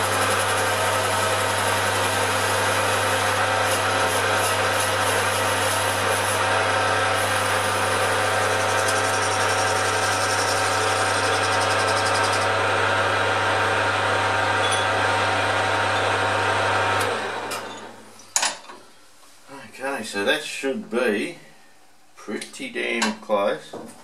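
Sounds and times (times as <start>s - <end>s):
lathe spinning down: 0.0s - 17.7s
lathe motor hum and gear whine: 0.0s - 17.8s.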